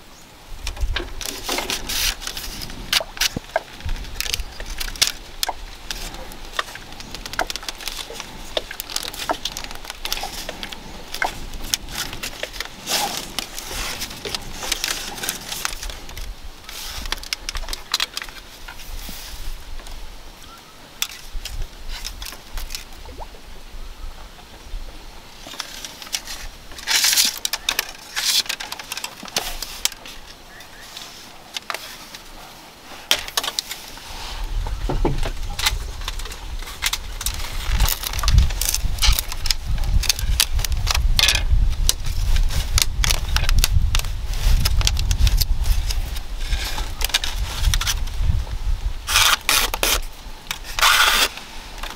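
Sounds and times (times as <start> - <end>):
bamboo strips crackling and clicking: 0.0 - 20.0, 20.9 - 23.3, 24.4 - 51.9
basket rustling: 0.8 - 19.4.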